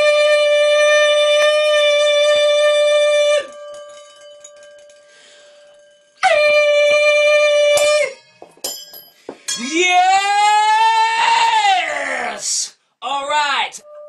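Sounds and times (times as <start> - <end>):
man singing a high note: 0.0 - 3.6, 6.2 - 8.2.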